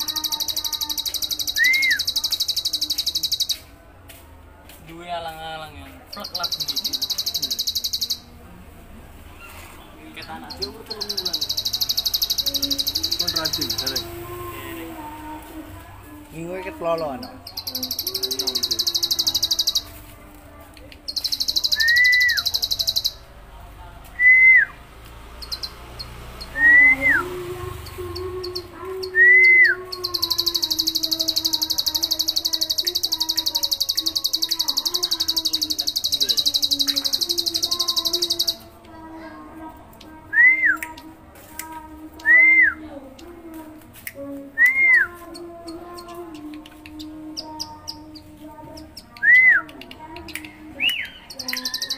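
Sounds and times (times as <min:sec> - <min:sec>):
bird buzzing trill: 0:00.0 - 0:03.6, 0:10.6 - 0:14.2, 0:17.2 - 0:20.0, 0:21.0 - 0:23.2, 0:27.9 - 0:38.7, 0:51.4 - 0:51.9
bird whistled notes: 0:00.0 - 0:03.6, 0:21.1 - 0:23.2.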